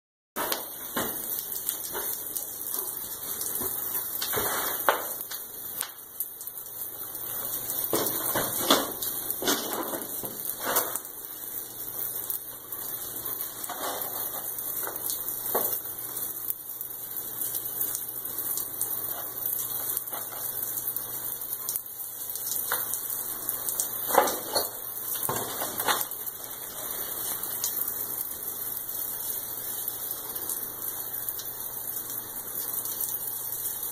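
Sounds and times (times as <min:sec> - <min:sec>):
spray spurts and knocks: 0:00.4 - 0:01.3, 0:02.8 - 0:05.4, 0:07.9 - 0:11.1, 0:13.6 - 0:15.8, 0:24.1 - 0:26.2.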